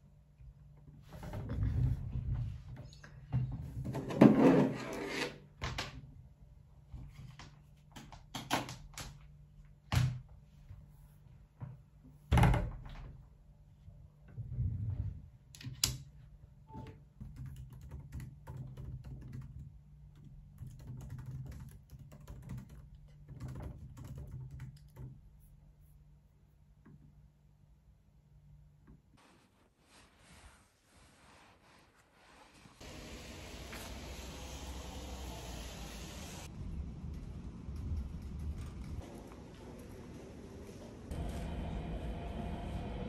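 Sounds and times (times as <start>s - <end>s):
typing on laptop keyboard: 17.2s - 25.2s.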